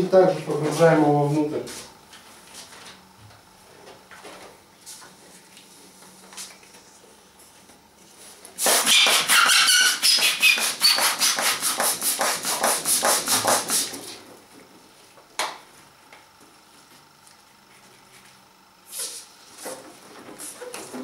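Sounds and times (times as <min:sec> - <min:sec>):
hand pump rushing air: 0:08.6 - 0:14.0
squeaky latex rubbing: 0:08.8 - 0:11.0.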